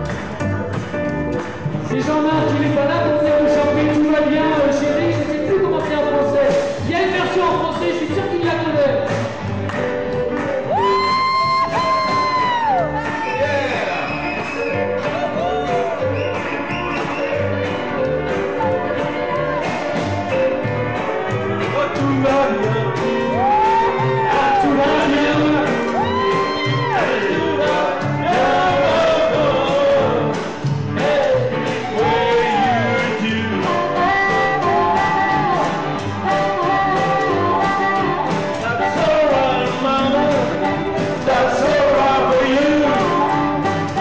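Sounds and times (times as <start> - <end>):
live rockabilly band: 0.0 - 44.0
person singing: 1.9 - 9.4, 18.3 - 44.0.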